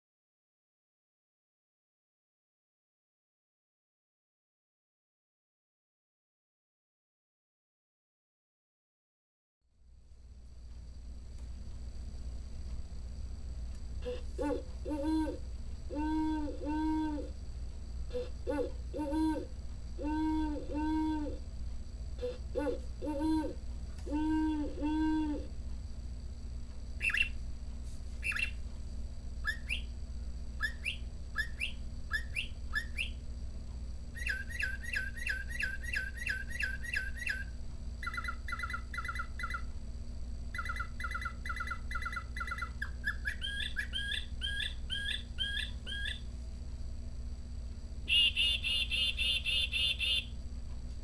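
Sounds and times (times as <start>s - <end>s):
fast repeated bird call: 14.0s - 17.3s, 18.1s - 21.4s, 27.0s - 27.4s, 28.2s - 28.6s, 29.4s - 30.0s, 30.6s - 33.2s, 34.2s - 39.7s, 40.5s - 46.3s, 48.1s - 50.4s
recorded birdsong from small speaker: 14.0s - 47.0s, 48.0s - 50.5s.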